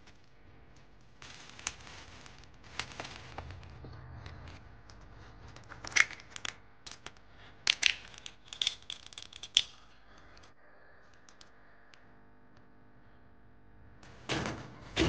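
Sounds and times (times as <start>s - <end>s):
walnut shells cracking: 5.6s - 10.5s.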